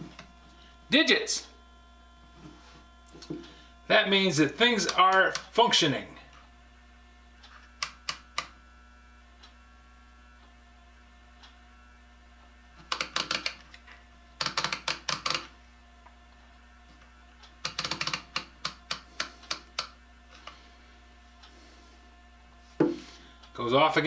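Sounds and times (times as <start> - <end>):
rotary switch clicking: 4.7 - 5.6, 7.4 - 8.6, 12.8 - 13.8, 14.4 - 15.5, 17.4 - 20.6.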